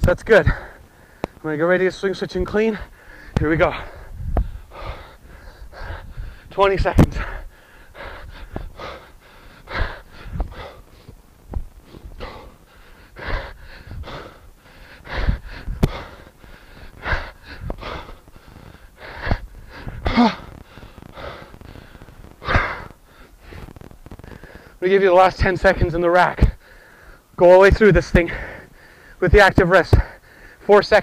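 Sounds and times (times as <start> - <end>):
man exhaling forcefully: 12.0 - 23.7
man grunting: 20.0 - 20.5.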